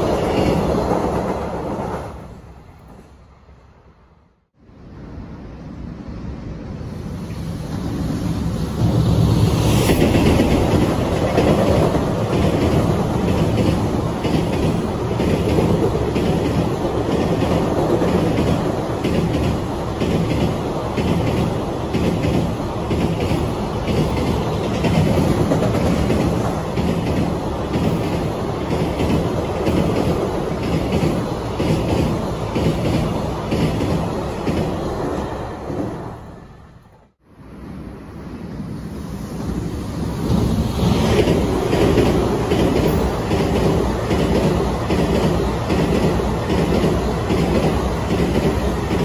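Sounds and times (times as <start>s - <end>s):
freight train rumbling over bridge: 0.0s - 49.0s
wheels clacking over rail joints: 9.8s - 35.2s, 41.0s - 49.0s.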